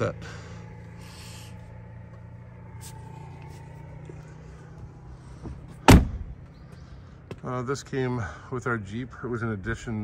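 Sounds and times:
low hum: 0:00.0 - 0:07.5
loud thump: 0:05.4 - 0:06.3.

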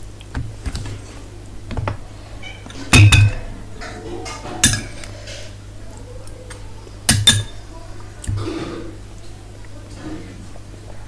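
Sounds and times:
metal spoon clinking on dishes: 0:02.9 - 0:05.1, 0:07.1 - 0:07.6.

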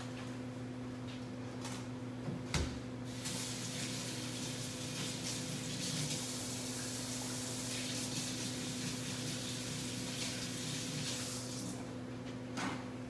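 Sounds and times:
tap water running into sink: 0:03.1 - 0:11.8.

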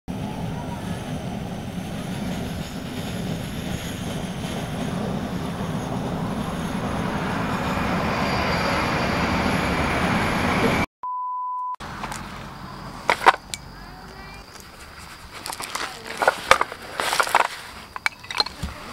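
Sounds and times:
gas burner roaring: 0:00.1 - 0:10.8
electronic beep: 0:11.0 - 0:11.8.

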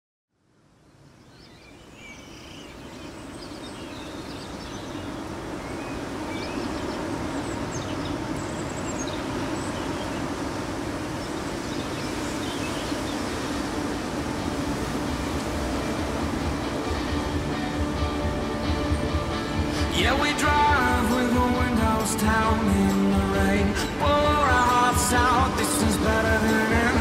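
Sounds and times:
steady wash of outdoor noise: 0:00.3 - 0:27.0
small birds chirping: 0:01.2 - 0:10.4, 0:11.0 - 0:13.6.

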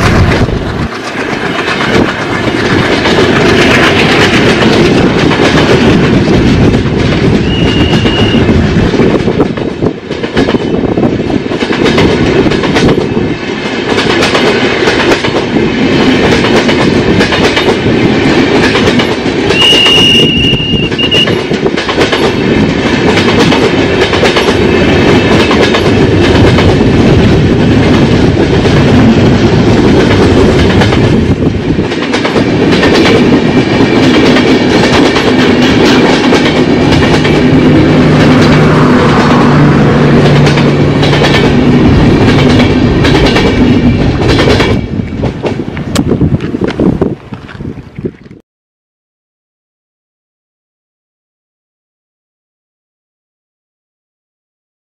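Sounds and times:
train rushing past: 0:00.0 - 0:47.6
wheels clickety-clacking on rails: 0:00.0 - 0:48.4
wheel squeal: 0:07.4 - 0:08.5, 0:19.6 - 0:21.4.

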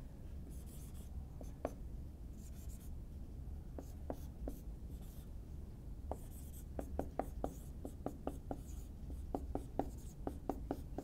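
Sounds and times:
marker tapping on whiteboard: 0:03.8 - 0:04.6, 0:06.1 - 0:11.0.

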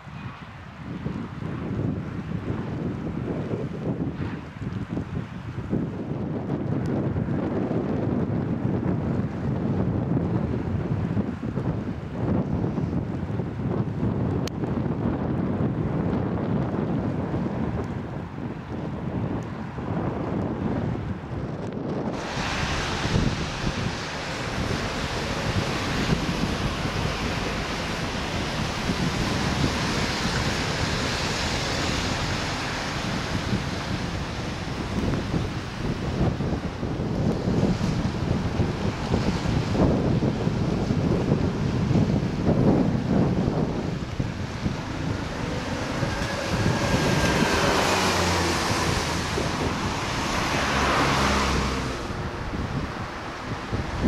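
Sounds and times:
wind buffeting microphone: 0:00.0 - 0:54.0
motor vehicle passing: 0:21.9 - 0:41.0, 0:43.1 - 0:54.0
river water rushing: 0:21.9 - 0:54.0.

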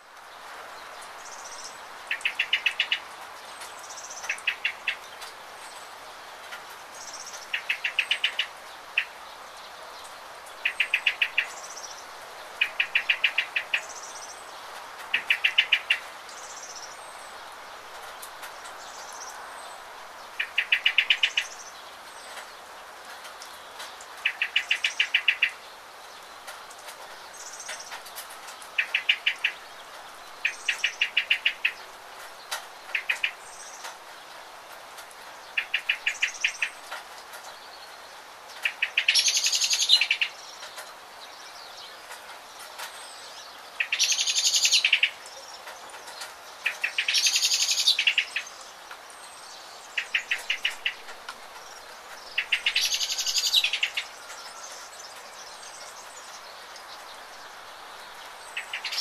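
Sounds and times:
rain hissing: 0:00.0 - 0:59.0
songbird trilling: 0:01.4 - 0:03.0, 0:07.0 - 0:09.2, 0:10.6 - 0:12.0, 0:12.6 - 0:14.4, 0:15.1 - 0:17.0, 0:20.4 - 0:21.7, 0:30.4 - 0:31.8, 0:35.6 - 0:36.8, 0:38.6 - 0:40.6, 0:43.8 - 0:45.6, 0:46.6 - 0:48.7, 0:49.4 - 0:51.1, 0:52.2 - 0:56.2, 0:58.4 - 0:59.0.

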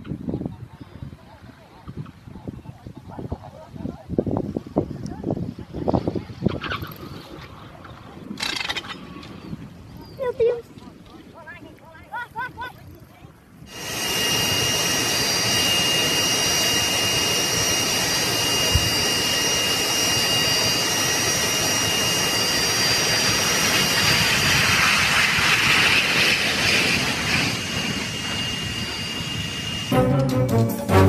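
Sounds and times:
high-pitched engine whines: 0:13.6 - 0:31.0
jet engines roaring: 0:13.6 - 0:31.0.

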